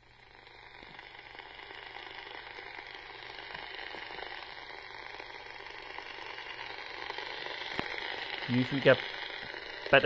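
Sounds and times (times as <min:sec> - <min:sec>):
radio static hiss: 0:00.0 - 0:10.0.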